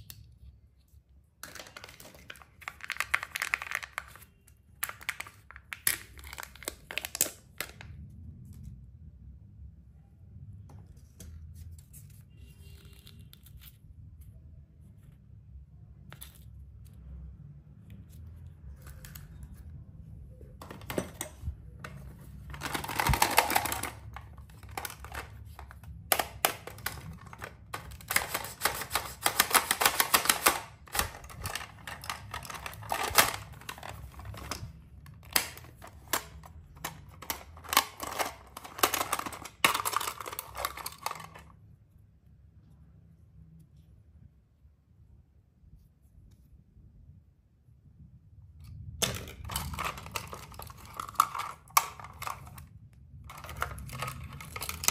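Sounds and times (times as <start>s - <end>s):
plastic packaging crinkling: 1.4s - 7.9s, 22.0s - 41.5s, 49.3s - 52.7s, 53.3s - 54.9s
plastic toy case clicking: 22.5s - 41.5s, 49.0s - 52.7s.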